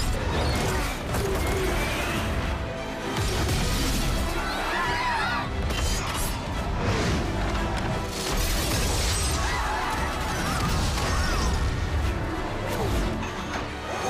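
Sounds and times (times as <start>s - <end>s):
dramatic music: 0.0s - 14.0s.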